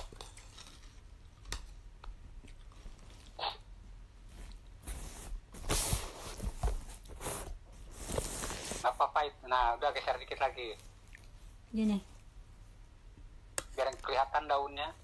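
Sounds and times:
wet chewing: 0:00.0 - 0:03.7, 0:11.0 - 0:11.4.

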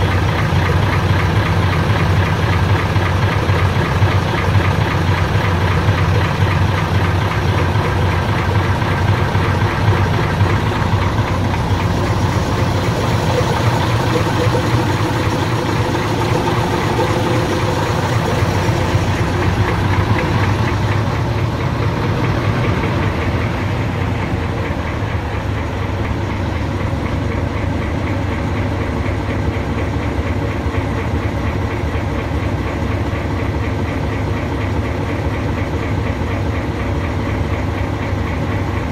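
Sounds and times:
diesel engine idling: 0:00.0 - 0:38.9.

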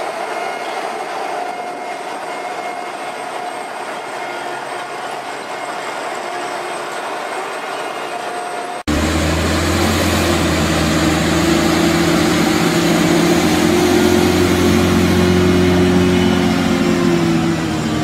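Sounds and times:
diesel engine running: 0:08.8 - 0:18.0.

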